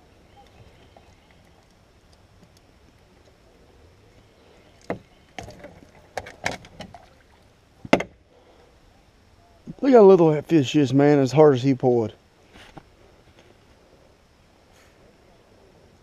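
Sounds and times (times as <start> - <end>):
knocks and clatter in boat: 4.8 - 7.1.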